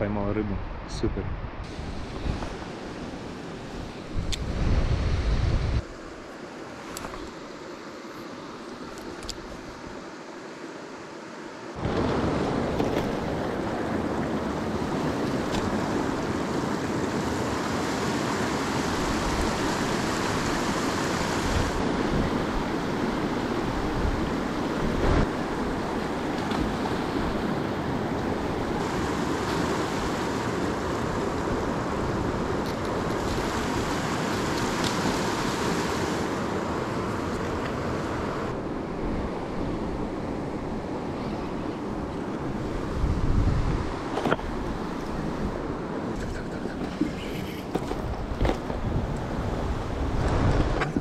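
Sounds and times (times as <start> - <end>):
wind buffeting microphone: 0.5 - 2.9, 3.7 - 5.9, 11.8 - 36.2, 37.7 - 51.0.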